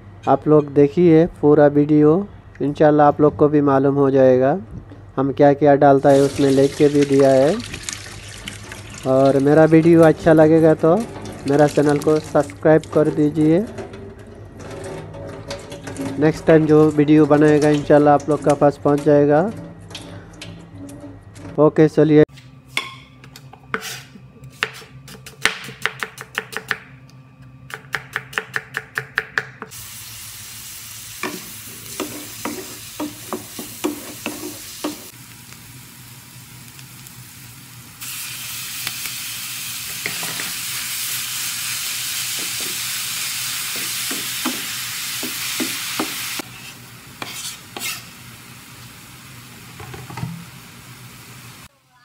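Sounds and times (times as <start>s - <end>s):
food frying in a pan: 29.7s - 52.0s
spoon scraping and knocking pan: 31.2s - 35.1s, 43.8s - 48.1s.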